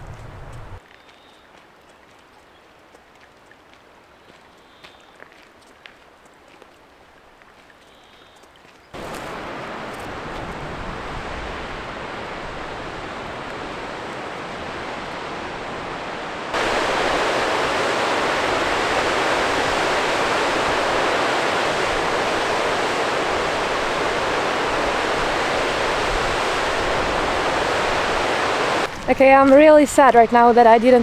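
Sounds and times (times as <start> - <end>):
stream rushing over rocks: 8.9 - 30.6.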